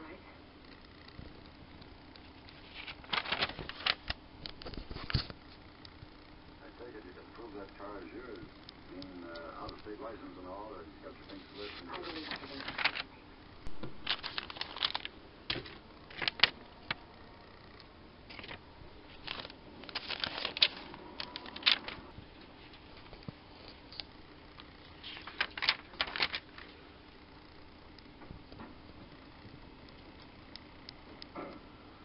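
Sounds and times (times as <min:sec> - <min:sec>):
packaging handling clicks and rustles: 0:02.4 - 0:05.4, 0:11.3 - 0:13.1, 0:14.0 - 0:17.0, 0:18.3 - 0:22.0, 0:25.0 - 0:26.7.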